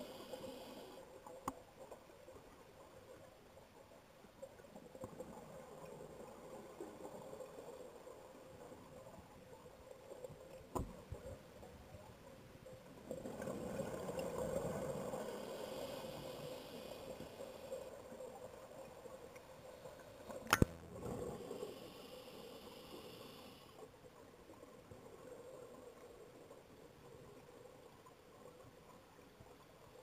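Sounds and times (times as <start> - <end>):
diver breathing underwater: 15.2 - 17.9.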